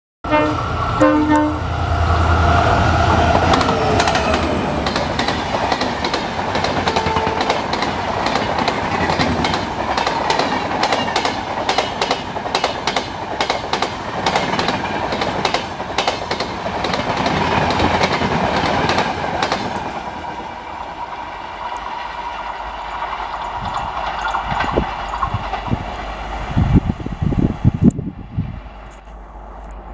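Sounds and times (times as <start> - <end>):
train horn: 0.2 - 4.6, 6.8 - 7.7
train wheels clacking over rail joints: 3.1 - 20.0, 21.7 - 26.0.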